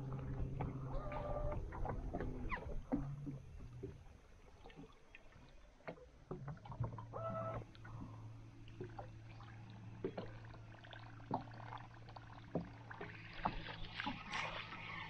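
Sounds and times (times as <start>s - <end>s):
steady low hum: 0.0s - 15.0s
light clicks and knocks of gear: 9.9s - 14.2s.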